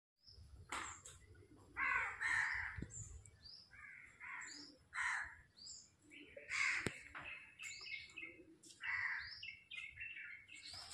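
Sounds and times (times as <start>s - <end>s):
small birds chirping: 0.2s - 10.9s
crows cawing: 1.8s - 2.9s, 3.7s - 5.5s, 6.5s - 7.1s, 8.8s - 9.4s.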